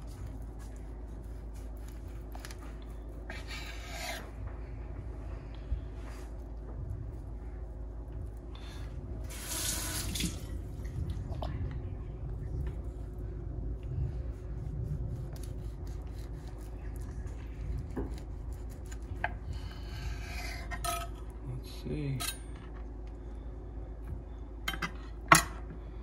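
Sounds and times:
knife cutting sushi roll: 0.0 - 4.4, 14.9 - 19.4.

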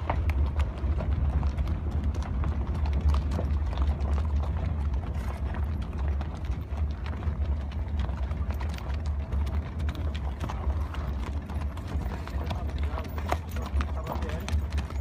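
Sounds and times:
hooves clip-clopping on stony ground: 0.0 - 15.0
steady low rumble: 0.0 - 15.0.

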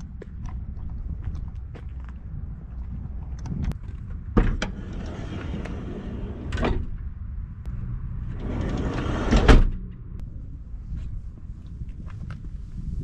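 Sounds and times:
sliding door rolling scrape: 4.6 - 6.9, 8.2 - 9.8
door shutting thud: 8.6 - 9.8.

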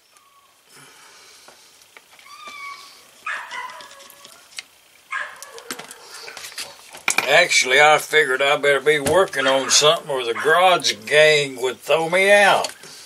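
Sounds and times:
animal crying: 2.2 - 4.5, 5.1 - 6.8, 9.6 - 11.1.

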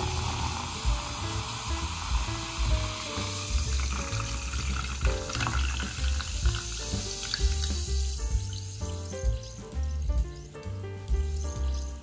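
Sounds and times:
fizzy drink pouring and fizzing: 0.0 - 9.1
background music: 0.0 - 12.0.

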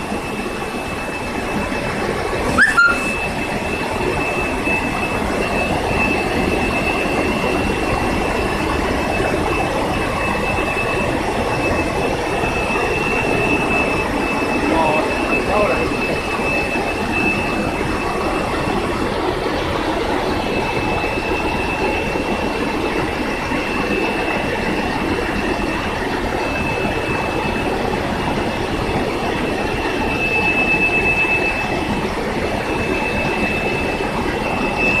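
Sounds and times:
high whine: 0.0 - 35.0.

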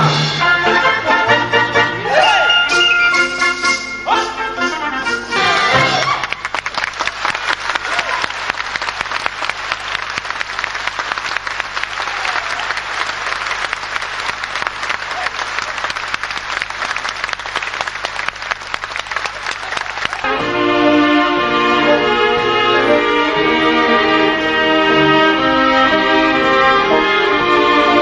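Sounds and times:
audience applauding: 5.7 - 21.3.

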